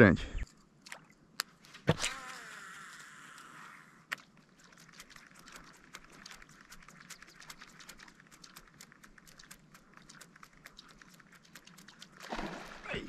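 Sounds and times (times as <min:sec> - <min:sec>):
rapid irregular clicking: 0:02.9 - 0:12.4.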